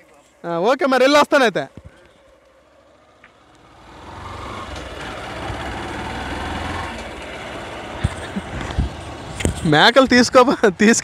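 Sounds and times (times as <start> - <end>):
motorcycle engine riding: 1.7 - 11.0
wind rush: 8.3 - 9.7.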